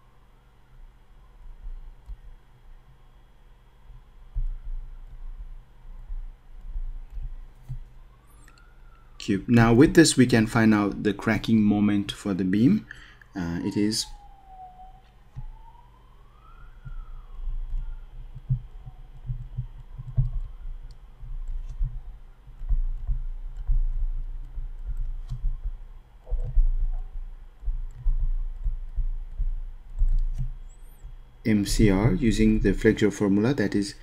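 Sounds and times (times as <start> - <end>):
stylus tapping on tablet screen: 16.8 - 31.2.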